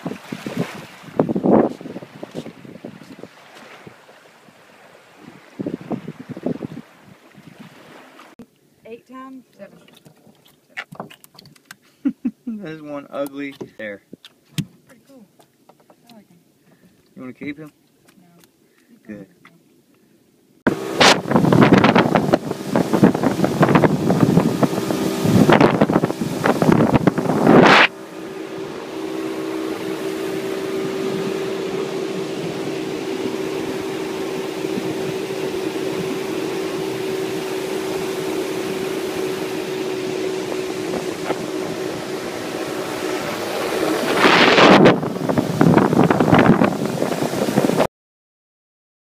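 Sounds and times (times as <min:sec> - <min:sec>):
wind buffeting microphone: 0:00.0 - 0:07.9, 0:20.7 - 0:47.9
outboard motor drone: 0:00.0 - 0:09.0, 0:20.7 - 0:47.9.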